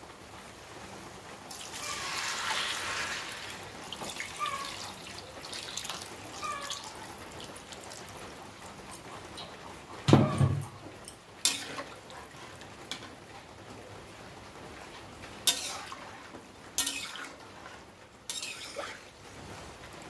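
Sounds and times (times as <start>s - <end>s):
metal spatula scraping pan: 11.4s - 12.0s, 15.5s - 16.2s, 16.8s - 19.0s.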